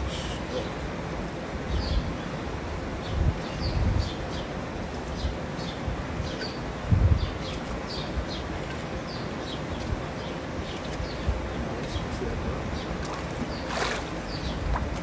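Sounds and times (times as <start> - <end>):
small birds chirping: 0.0 - 0.9, 1.6 - 15.0
water sloshing around legs: 12.7 - 15.0
water splash: 13.0 - 15.0.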